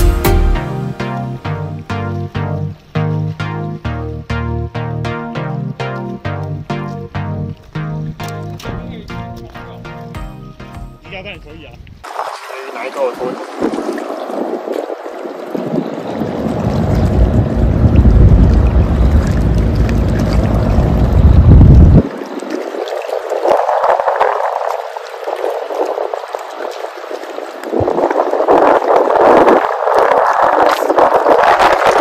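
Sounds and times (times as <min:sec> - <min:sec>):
rippling river water: 0:01.0 - 0:32.0
wind buffeting microphone: 0:13.0 - 0:32.0.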